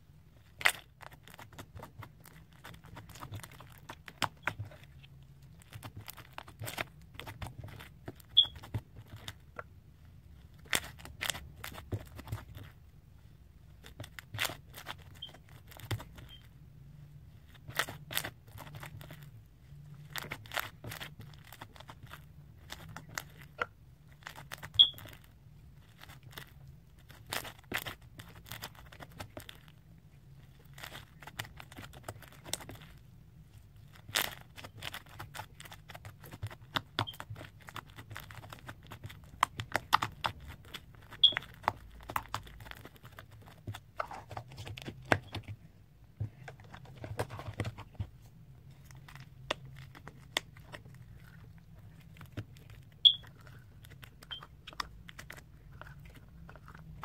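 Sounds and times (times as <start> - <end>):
slime crackling and popping: 33.8 - 43.9.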